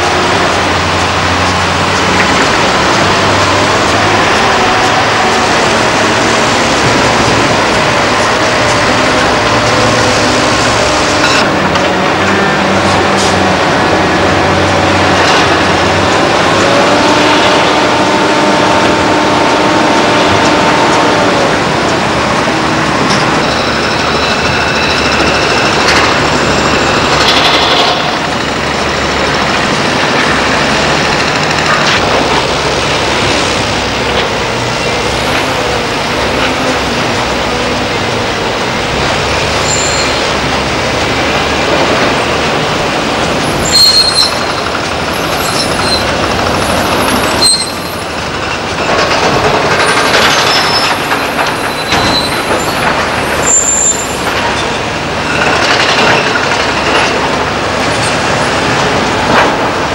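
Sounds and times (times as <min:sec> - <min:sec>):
diesel truck engines running: 0:00.0 - 0:59.9
short high squeaks: 0:39.6 - 0:40.4, 0:43.6 - 0:46.2, 0:47.2 - 0:48.0, 0:49.9 - 0:52.8.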